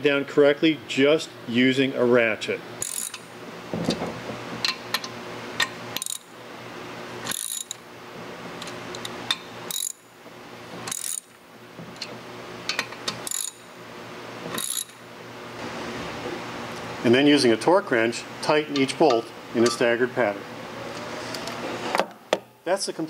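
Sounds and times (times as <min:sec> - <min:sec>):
hand ratchet clicking: 0:02.8 - 0:03.2, 0:06.0 - 0:06.2, 0:07.3 - 0:07.8, 0:09.7 - 0:10.0, 0:10.9 - 0:11.3, 0:12.7 - 0:13.6, 0:14.6 - 0:15.0.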